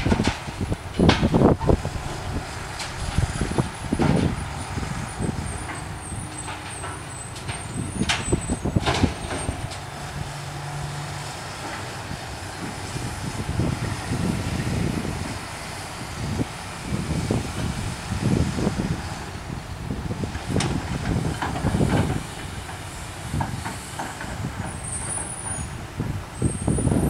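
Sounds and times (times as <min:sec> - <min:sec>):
knocks of asphalt and steel: 0:00.0 - 0:10.1, 0:20.2 - 0:26.2
excavator engine droning: 0:00.0 - 0:27.0.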